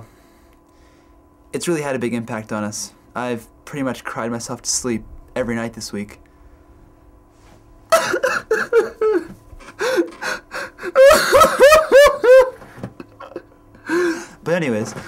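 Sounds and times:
man sobbing: 7.9 - 14.4.

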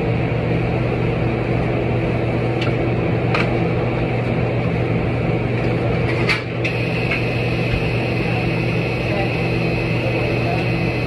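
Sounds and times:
machine hum: 0.0 - 11.0
thin high whine: 6.6 - 11.0.

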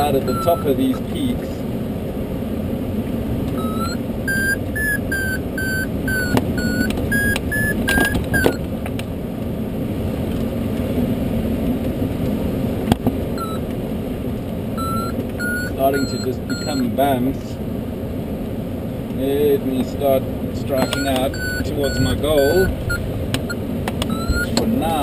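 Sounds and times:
variometer short beeps: 0.0 - 1.1, 3.6 - 8.6, 13.4 - 13.6, 14.8 - 16.9, 20.7 - 24.6.

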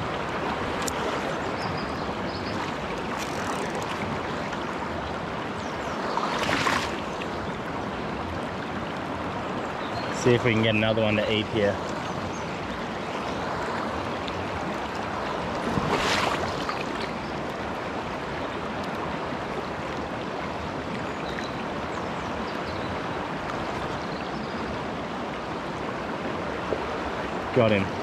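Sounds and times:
water swish: 0.0 - 9.2, 11.4 - 21.0
river flowing over stones: 0.0 - 28.0.

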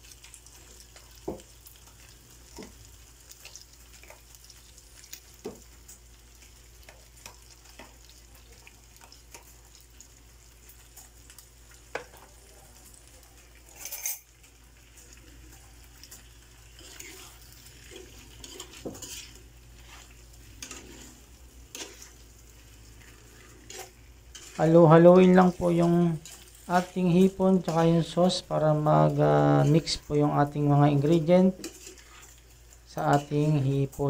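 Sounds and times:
faint sizzle in a frying pan: 0.0 - 34.0
spoon scraping a bowl: 16.8 - 22.2.

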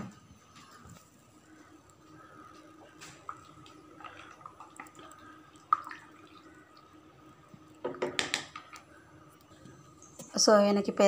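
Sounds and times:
liquid splashing in pot: 2.9 - 6.9.

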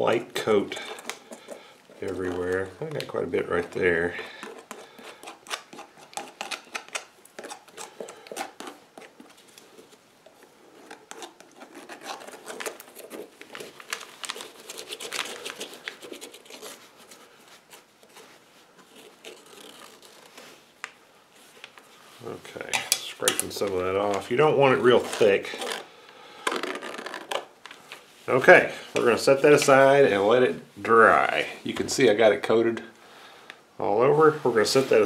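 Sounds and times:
wooden stick scraping rubber sole: 3.4 - 20.6, 24.1 - 27.5.

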